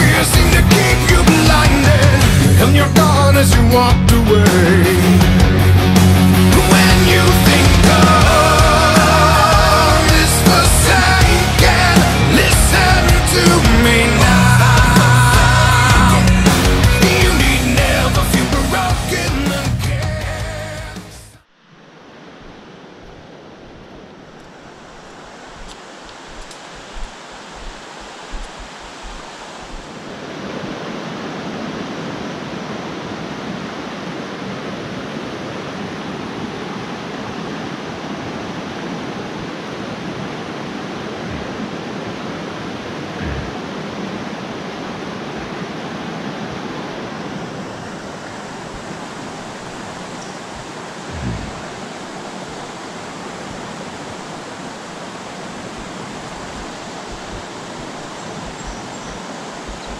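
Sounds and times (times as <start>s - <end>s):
fast-flowing river rushing: 0.0s - 59.9s
low thumps: 51.1s - 51.7s, 55.8s - 59.9s.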